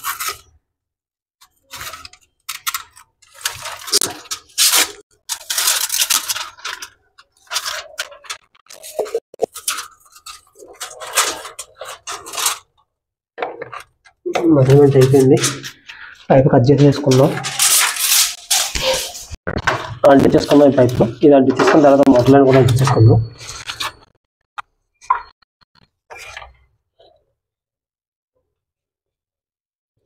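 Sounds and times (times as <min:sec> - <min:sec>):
plastic pipe scraping and rustling: 0:01.4 - 0:12.8, 0:13.4 - 0:24.1, 0:26.1 - 0:27.2.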